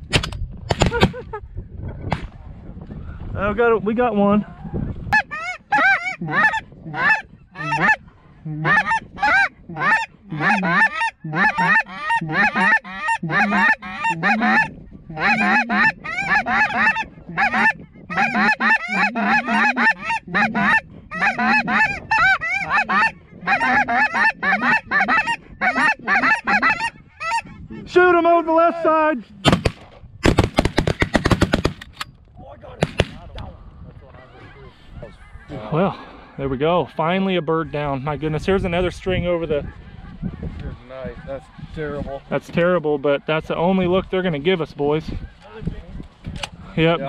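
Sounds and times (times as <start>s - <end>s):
geese honking and clucking: 4.4s - 27.9s, 34.0s - 45.7s.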